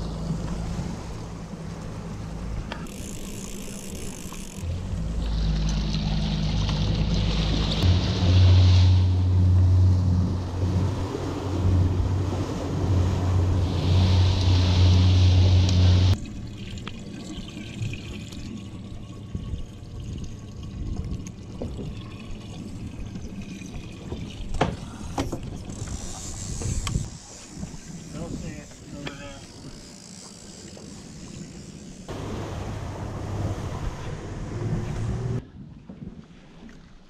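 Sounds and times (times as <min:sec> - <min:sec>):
outboard engine running: 0:00.0 - 0:16.7, 0:23.7 - 0:35.4
rushing water: 0:00.0 - 0:26.0, 0:30.9 - 0:35.4
water sloshing and trickling: 0:00.0 - 0:37.0
wind: 0:00.0 - 0:37.0.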